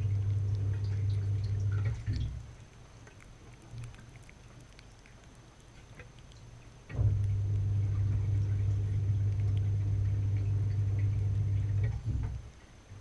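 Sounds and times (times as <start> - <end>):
dishwasher pump motor humming: 0.0 - 2.4, 6.9 - 12.4.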